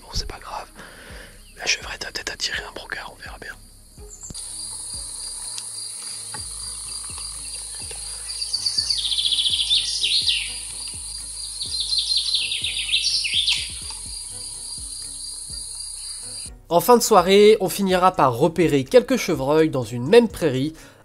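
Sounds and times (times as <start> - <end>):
songbird singing: 0.1 - 16.6
insects chirring: 0.3 - 16.5.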